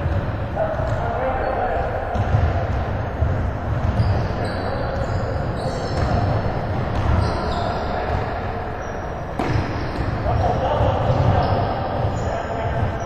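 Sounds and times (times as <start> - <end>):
basketball bouncing: 2.1 - 4.3, 5.8 - 7.3
sneakers squeaking on court: 2.1 - 13.0.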